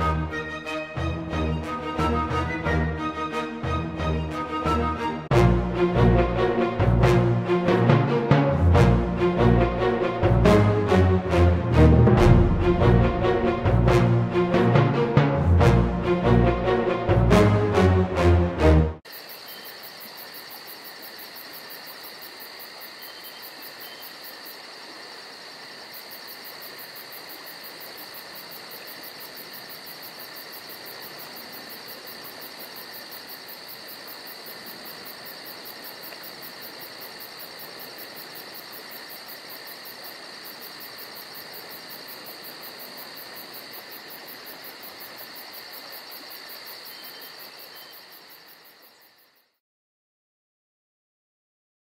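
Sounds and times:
insects chirring: 0:19.1 - 0:49.6.

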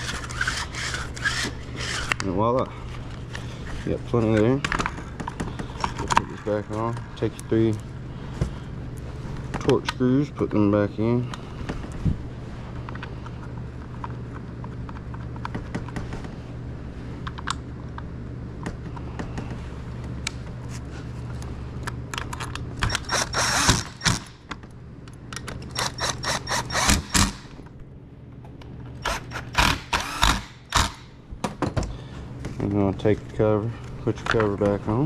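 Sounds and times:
power driver whining and clicking: 0:00.0 - 0:03.4, 0:21.8 - 0:27.7, 0:28.4 - 0:31.1.

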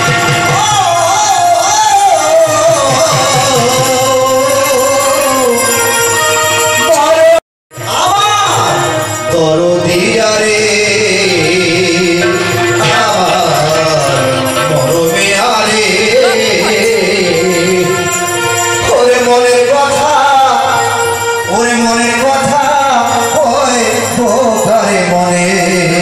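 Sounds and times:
instrumental accompaniment: 0:00.0 - 0:26.0
person singing: 0:06.8 - 0:26.0.

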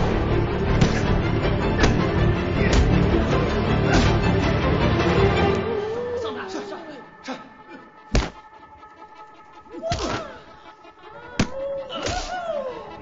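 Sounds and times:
punch and kick impacts: 0:00.7 - 0:03.1, 0:03.9 - 0:04.2, 0:08.1 - 0:08.5.

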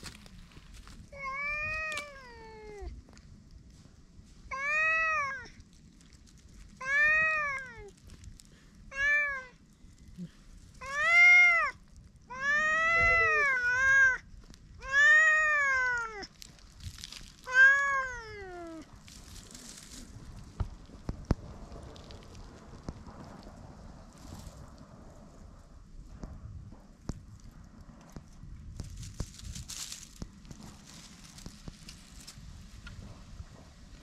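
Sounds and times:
cat meowing: 0:01.1 - 0:02.9, 0:04.5 - 0:05.5, 0:06.8 - 0:07.9, 0:08.9 - 0:09.6, 0:10.8 - 0:16.3, 0:17.5 - 0:18.9.

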